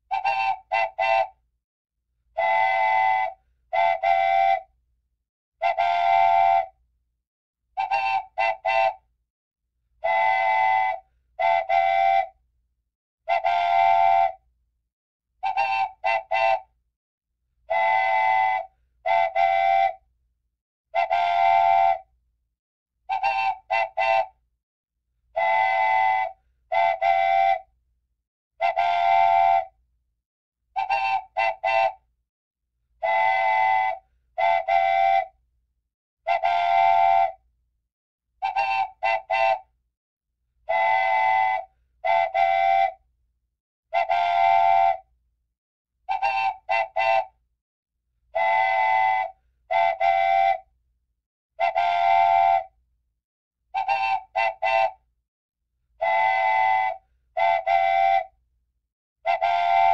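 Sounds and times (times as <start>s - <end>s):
multi-tone whistle blowing: 0.1s - 1.4s, 2.4s - 4.8s, 5.6s - 6.8s, 7.8s - 9.1s, 10.0s - 12.4s, 13.3s - 14.5s, 15.4s - 16.8s, 17.7s - 20.1s, 21.0s - 22.1s, 23.1s - 24.4s, 25.4s - 27.7s, 28.6s - 29.8s, 30.8s - 32.1s, 33.0s - 35.4s, 36.3s - 37.5s, 38.4s - 39.8s, 40.7s - 43.0s, 44.0s - 45.1s, 46.1s - 47.4s, 48.3s - 50.7s, 51.6s - 52.8s, 53.8s - 55.1s, 56.0s - 58.4s, 59.3s - 59.9s.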